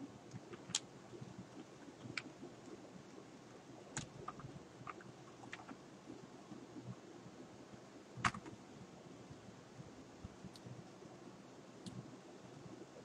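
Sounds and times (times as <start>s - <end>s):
keyboard key clicks: 8.2s - 8.5s.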